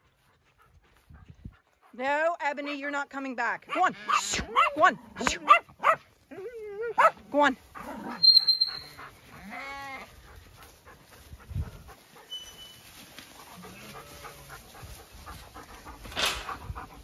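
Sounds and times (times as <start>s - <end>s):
sheep bleating: 8.8s - 10.1s.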